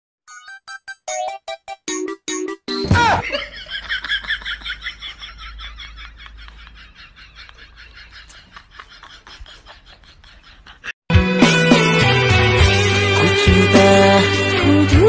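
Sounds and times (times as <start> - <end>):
high-pitched laughs: 3.0 - 11.0.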